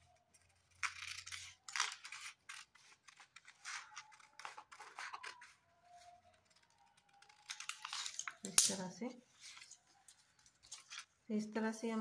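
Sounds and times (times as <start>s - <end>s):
scissors cutting paper: 0.0s - 8.8s.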